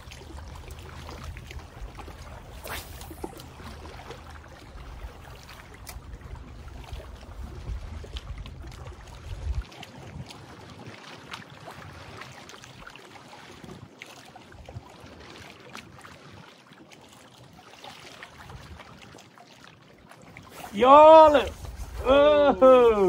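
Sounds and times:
waves lapping against rocks: 0.0s - 23.0s
wind buffeting microphone: 6.1s - 11.0s, 20.7s - 23.0s.

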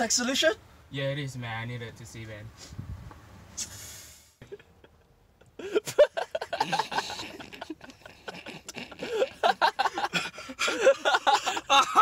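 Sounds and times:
person laughing in bursts: 4.4s - 12.0s.

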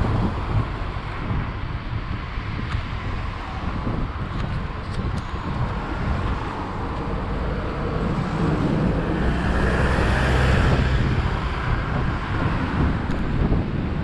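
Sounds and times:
street traffic: 0.0s - 14.0s
wind rushing over microphone: 0.0s - 14.0s
car passing: 5.2s - 13.6s.

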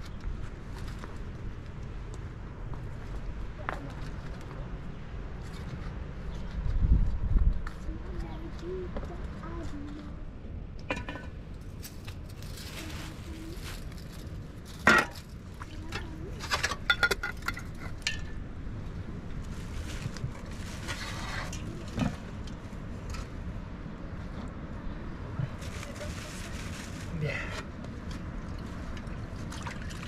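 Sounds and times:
rustling: 11.7s - 16.8s, 19.3s - 23.4s, 25.4s - 28.2s.

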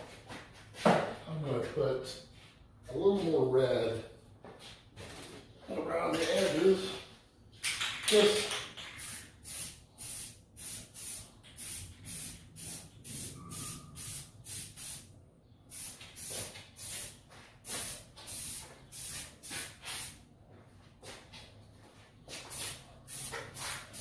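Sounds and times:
sprayer hissing bursts: 9.0s - 15.0s.

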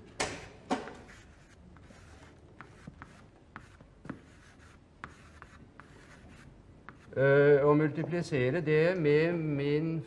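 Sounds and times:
chalk writing on blackboard: 1.0s - 7.2s.

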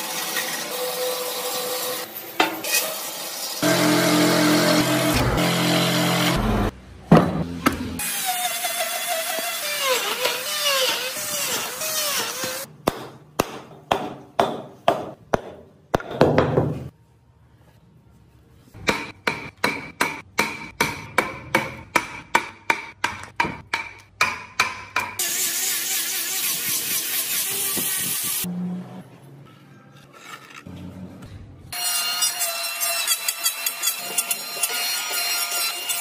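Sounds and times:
wood router running: 3.6s - 6.7s
angle grinder sanding wood: 25.2s - 28.5s.

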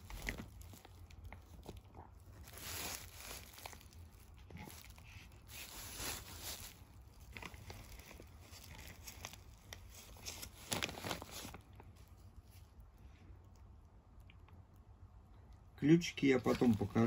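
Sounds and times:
bubble wrap crinkling: 0.0s - 13.6s, 16.2s - 17.0s.

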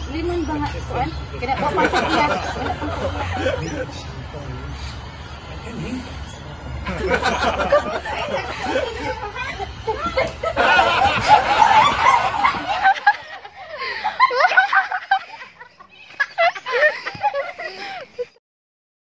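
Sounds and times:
women laughing and giggling: 1.5s - 3.9s, 6.8s - 18.4s.

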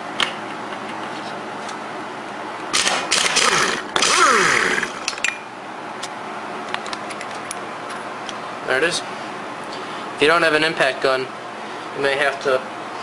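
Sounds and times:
impact wrench hammering: 2.8s - 5.4s.

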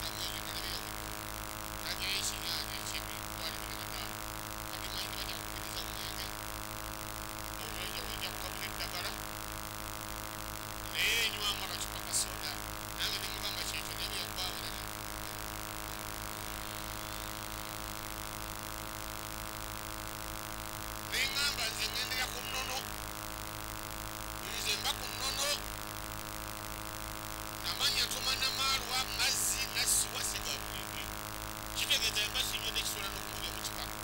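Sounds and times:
man speaking into microphone: 0.0s - 1.0s, 1.8s - 6.4s, 7.6s - 9.3s, 10.8s - 16.1s, 21.1s - 22.9s, 24.4s - 25.6s, 27.6s - 31.1s, 31.8s - 34.0s
electrical hum: 0.0s - 34.0s.

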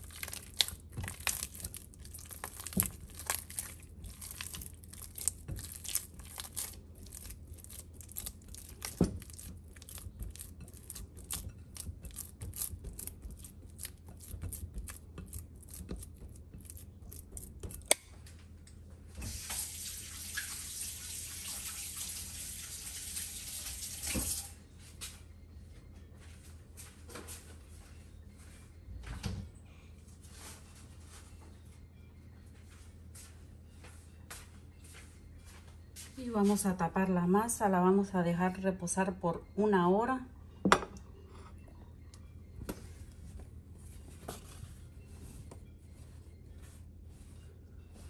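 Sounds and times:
hands kneading wet dough: 0.0s - 18.0s
running tap water: 19.3s - 24.5s.

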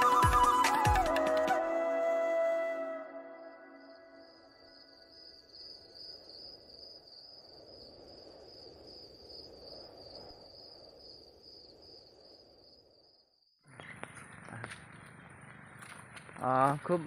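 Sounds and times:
high insect trill: 3.2s - 13.6s.

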